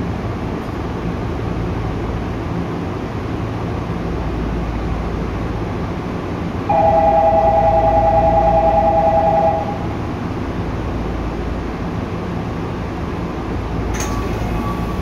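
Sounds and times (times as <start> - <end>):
train car running hum: 0.0 - 15.0
loud two-tone signal: 6.7 - 10.0.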